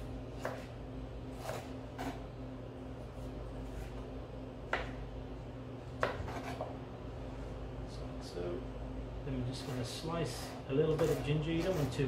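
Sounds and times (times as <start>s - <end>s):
steady low hum: 0.0s - 12.0s
knife peeling ginger: 9.6s - 12.0s.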